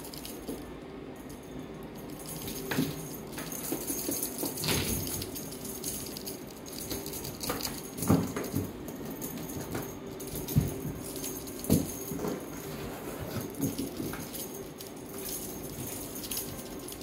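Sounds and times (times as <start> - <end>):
kitten scuffling and pattering: 6.8 - 17.0.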